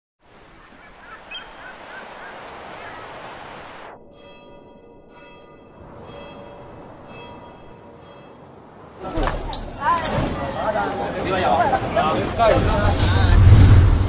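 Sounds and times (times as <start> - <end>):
surf washing on beach: 0.2 - 3.9
short bird calls: 0.4 - 3.4
electronic music with chiming chords: 3.9 - 12.6.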